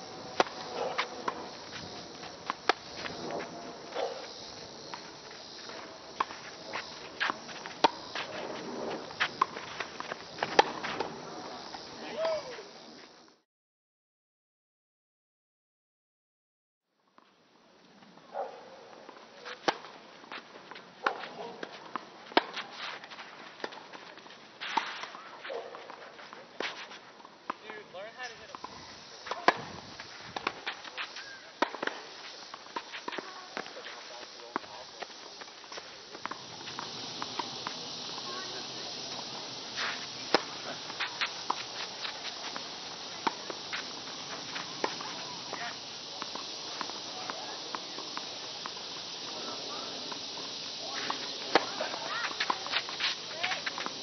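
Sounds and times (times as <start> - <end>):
footsteps and shoe scuffs: 0.0 - 13.2, 19.4 - 27.2, 28.2 - 54.0
steady background hiss: 0.0 - 13.4, 17.0 - 54.0
racket striking tennis ball: 0.2 - 11.2, 22.3 - 23.8, 29.3 - 32.0, 35.7 - 48.2, 50.9 - 54.0
tennis ball bouncing: 0.2 - 12.4, 28.4 - 33.9, 34.5 - 49.4, 50.8 - 54.0.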